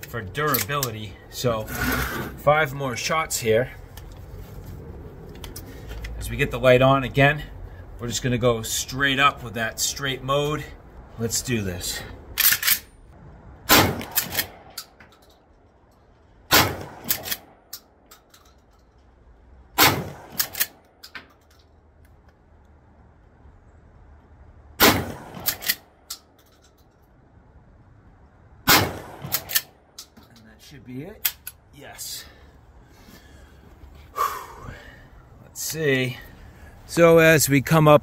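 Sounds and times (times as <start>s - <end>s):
shotgun slide clacking: 12.4s - 12.9s
shotgun shots: 13.7s - 14.8s, 16.5s - 17.5s, 19.8s - 20.7s, 24.8s - 25.8s, 28.7s - 29.7s.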